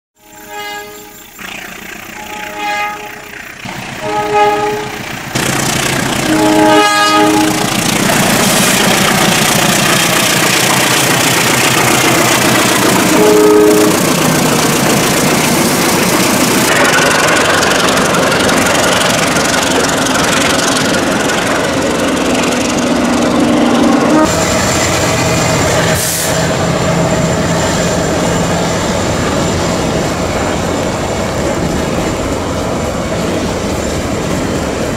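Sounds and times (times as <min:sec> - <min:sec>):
locomotive horn blasts: 0:00.2 - 0:01.3, 0:02.2 - 0:05.0, 0:06.2 - 0:07.7, 0:13.0 - 0:14.1, 0:23.9 - 0:24.4
locomotive and wagons rumbling: 0:00.3 - 0:34.9.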